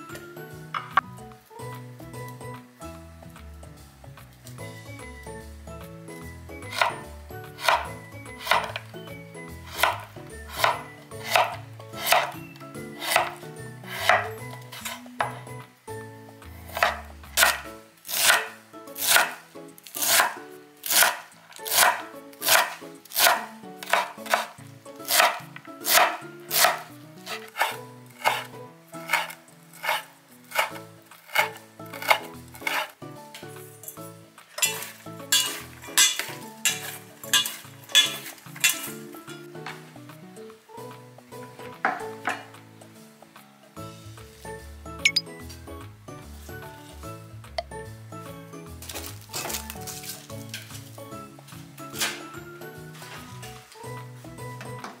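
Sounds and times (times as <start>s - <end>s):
soft background music: 0.0s - 55.0s
knife chopping on wooden board: 6.7s - 8.8s, 9.7s - 12.4s, 13.0s - 15.4s, 16.7s - 19.4s, 20.0s - 32.9s.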